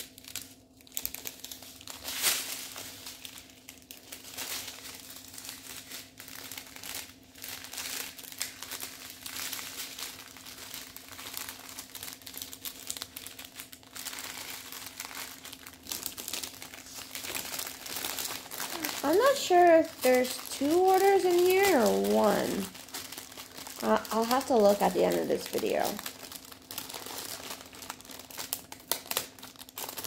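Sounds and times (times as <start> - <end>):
faint steady hum: 0.0 - 30.0
plastic bags crinkling: 0.0 - 30.0.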